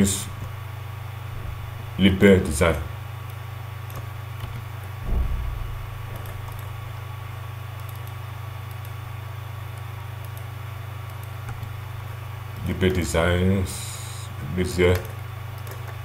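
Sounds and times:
low buzzing hum: 0:00.0 - 0:16.0
brief low thump: 0:05.0 - 0:07.0.

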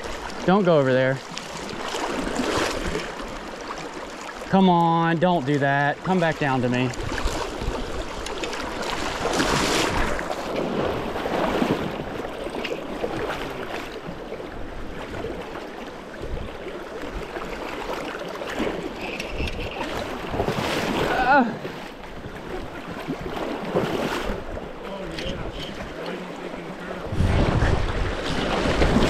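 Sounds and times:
wind buffeting microphone: 0:26.9 - 0:29.0.

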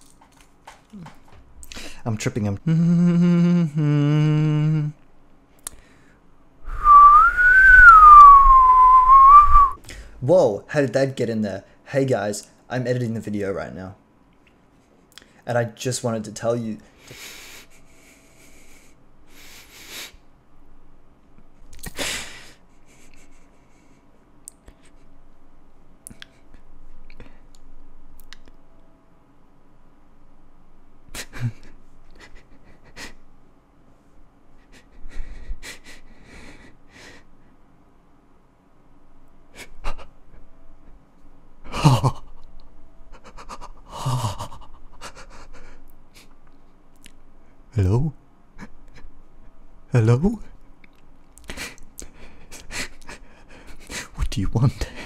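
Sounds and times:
man making wordless vocal noises: 0:02.4 - 0:05.0
man breathing and sniffing: 0:16.8 - 0:20.3, 0:21.8 - 0:25.2, 0:34.5 - 0:37.6.

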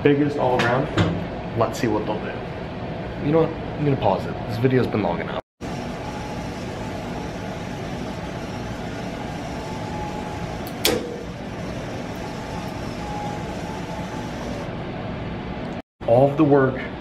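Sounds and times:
testing machine humming: 0:05.6 - 0:15.8.

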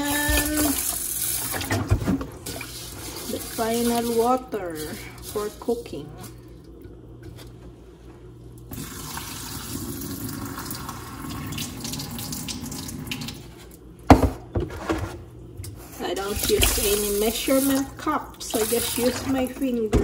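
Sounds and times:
faucet running into sink: 0:00.0 - 0:06.0, 0:08.7 - 0:13.4, 0:16.1 - 0:20.0.

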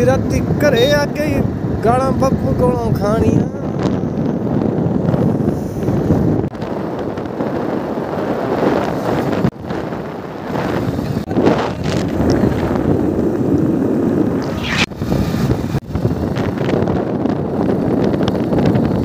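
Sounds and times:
motorcycle engine and road noise: 0:00.0 - 0:19.0
wind rushing over microphone: 0:00.0 - 0:19.0.

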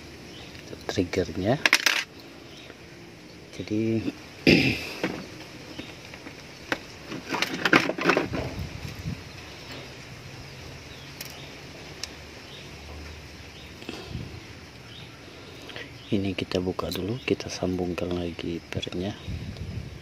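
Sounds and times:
metal clicks and rattles: 0:01.6 - 0:02.3.

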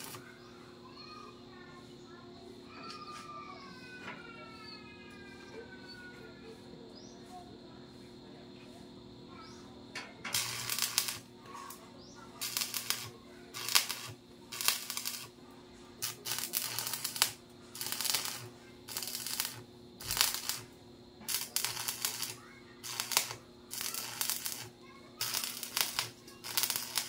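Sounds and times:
arc welding crackling: 0:00.0 - 0:00.5, 0:10.0 - 0:27.0
steady low hum: 0:06.4 - 0:27.0.

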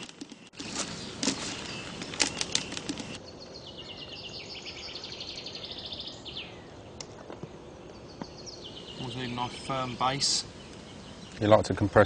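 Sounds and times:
crackling handling noise: 0:00.0 - 0:03.2.

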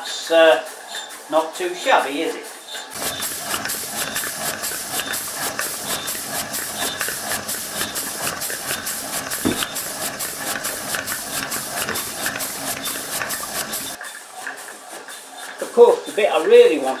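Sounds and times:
model steam engine hissing: 0:00.0 - 0:17.0
brief thump: 0:09.4 - 0:09.8.

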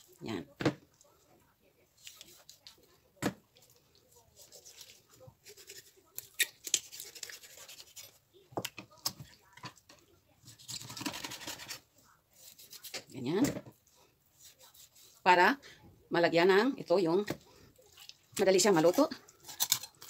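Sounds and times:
knife scraping through chicken: 0:04.4 - 0:08.2, 0:10.5 - 0:13.1.

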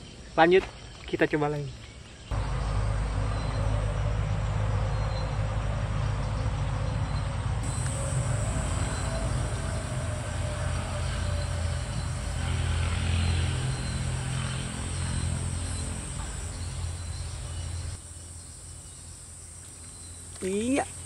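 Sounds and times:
low rumble: 0:02.3 - 0:18.0
high-pitched insect chorus: 0:06.2 - 0:21.0.

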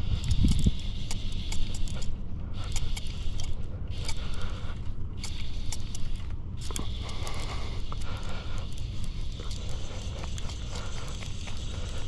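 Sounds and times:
wind rumble on microphone: 0:00.0 - 0:05.7
fly reel ratchet whirring: 0:00.0 - 0:12.0.

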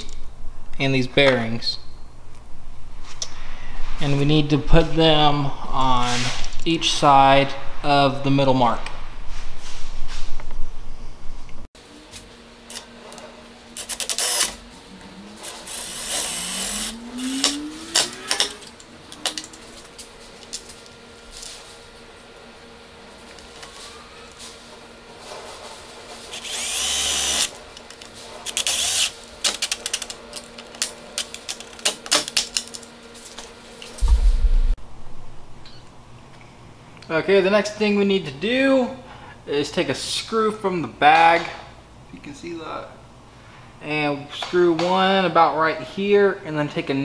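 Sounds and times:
power drill driving screws: 0:13.8 - 0:14.6, 0:15.7 - 0:17.6, 0:26.3 - 0:27.5.

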